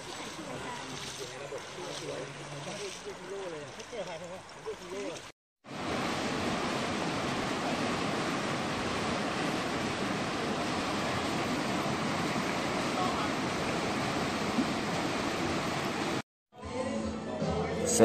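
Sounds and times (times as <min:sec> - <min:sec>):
river rapids rushing over boulders: 0:05.7 - 0:16.2.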